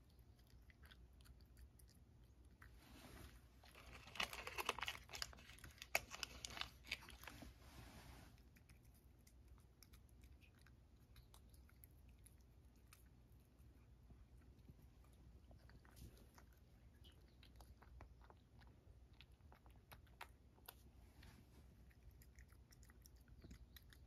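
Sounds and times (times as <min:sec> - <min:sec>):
cat crunching dry treats: 0:03.6 - 0:07.6.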